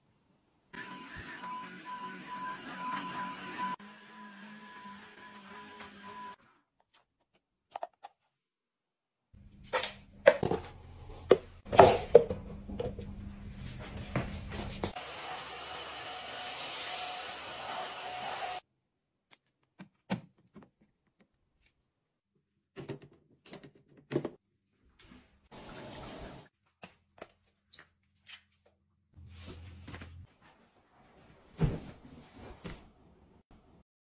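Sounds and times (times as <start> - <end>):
stick vacuum cleaner whine: 0.8 - 6.4, 14.9 - 18.6.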